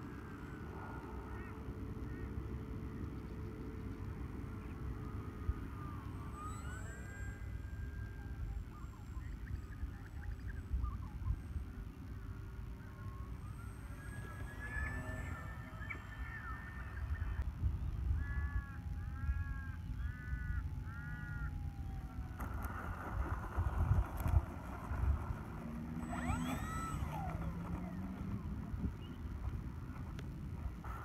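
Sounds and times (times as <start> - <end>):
bird calling: 0.0 - 24.3, 24.9 - 31.0
wind rumbling on microphone: 0.0 - 31.0.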